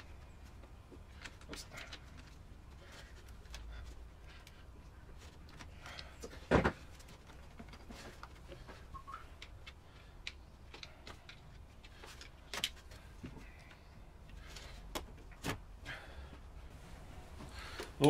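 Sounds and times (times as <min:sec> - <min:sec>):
hose handling clicks and knocks: 0:05.2 - 0:13.4.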